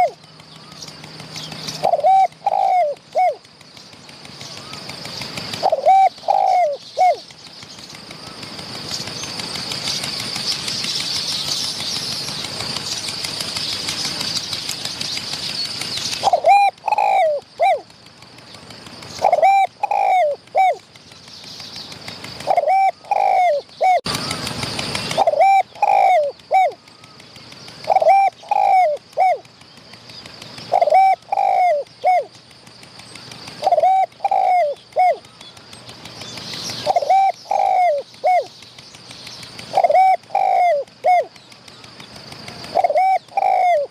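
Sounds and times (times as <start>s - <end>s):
dove cooing: 0.0s - 3.6s, 4.3s - 7.3s, 16.1s - 17.9s, 19.0s - 20.9s, 22.2s - 29.5s, 30.5s - 32.4s, 33.1s - 35.5s, 36.8s - 38.6s, 39.5s - 43.9s.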